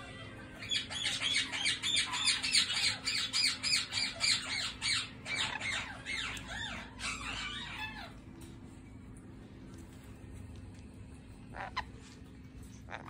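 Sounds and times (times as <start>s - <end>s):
parrot squawking: 0.0s - 8.2s, 11.4s - 13.0s.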